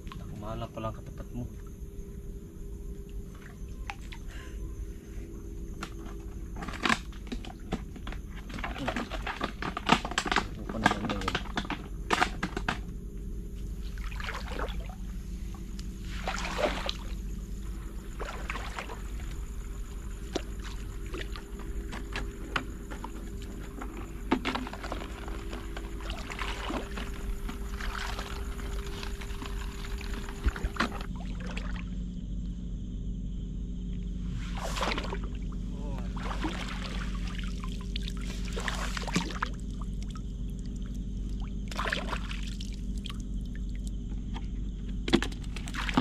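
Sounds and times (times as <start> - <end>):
seawater sloshing and splashing: 6.0 - 12.7, 13.6 - 15.2, 16.0 - 32.0, 34.4 - 46.0.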